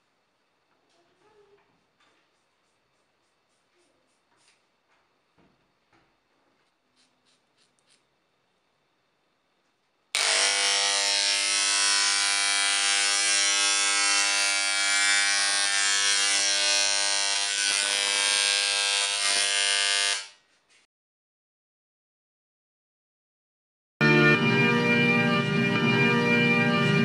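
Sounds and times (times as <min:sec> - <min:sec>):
electric hair clippers buzzing: 0:10.2 - 0:20.4.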